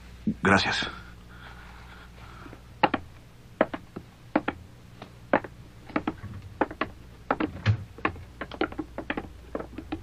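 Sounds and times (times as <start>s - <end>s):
boot footsteps on wooden floor: 2.8s - 10.0s.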